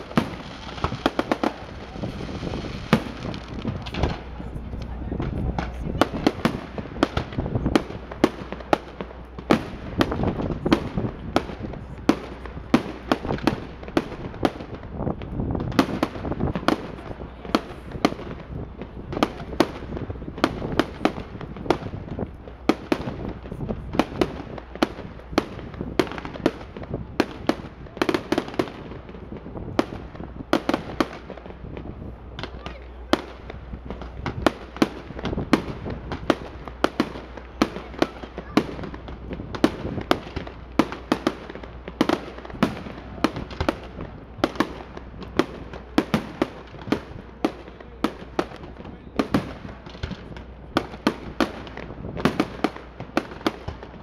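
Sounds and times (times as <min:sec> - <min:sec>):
noisy background: 0:00.0 - 0:25.7
fireworks bursting with sharp bangs: 0:00.0 - 0:54.0.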